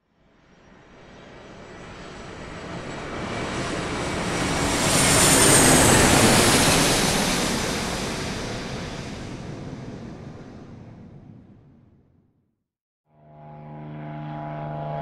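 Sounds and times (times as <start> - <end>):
airplane flying past: 13.1 - 15.0
high engine whine: 13.1 - 15.0.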